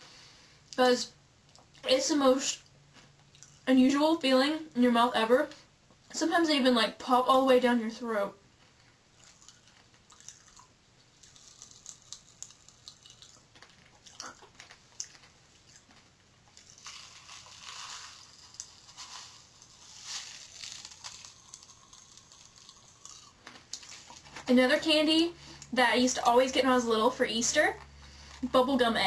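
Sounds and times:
small clicks and crackles: 0:08.6 - 0:24.5
candy packet crinkling: 0:09.3 - 0:15.9, 0:16.5 - 0:24.5.

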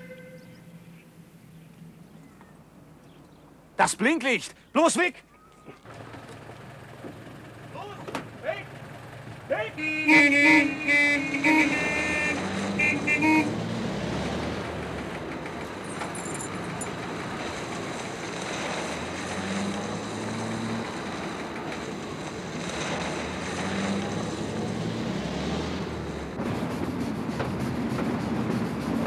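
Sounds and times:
short horn toot: 0:00.0 - 0:01.0, 0:09.8 - 0:13.6
steam locomotive running: 0:06.5 - 0:25.2, 0:25.8 - 0:29.0.

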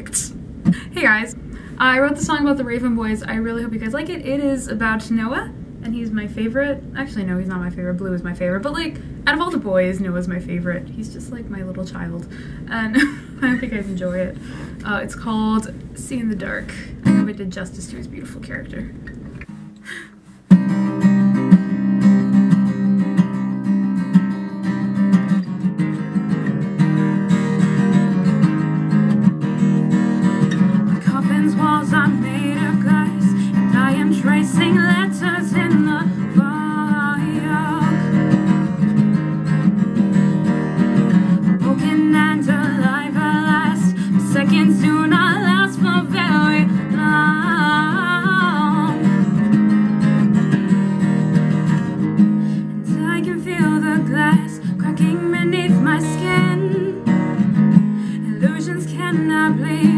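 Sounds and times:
acoustic guitar strumming: 0:17.0 - 0:17.4, 0:19.0 - 0:59.9
woman singing: 0:30.9 - 0:38.7, 0:41.4 - 0:49.4, 0:52.8 - 0:59.9.

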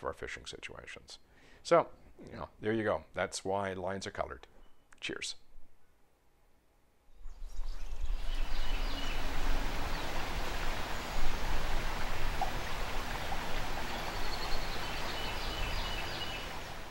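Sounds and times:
river water rushing: 0:08.2 - 0:16.9.

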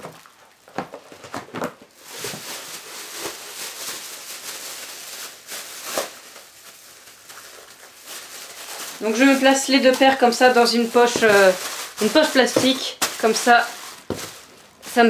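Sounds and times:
plastic bag rustling and crinkling: 0:00.0 - 0:15.0
sharp plastic crackles: 0:00.0 - 0:15.0.

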